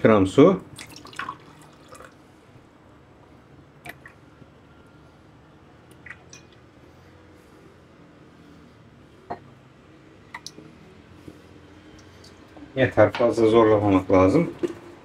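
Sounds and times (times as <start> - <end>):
water pouring into a glass: 0.7 - 2.2, 5.9 - 6.6
water trickling and dripping: 0.7 - 2.2, 3.8 - 4.2.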